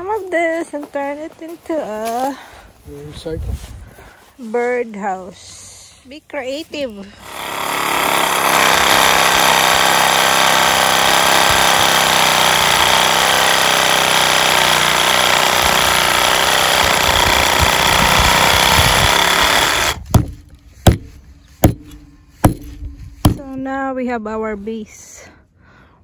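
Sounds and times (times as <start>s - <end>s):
reciprocating saw cutting branch: 7.2s - 23.4s
hatchet chopping into log: 18.6s - 23.4s.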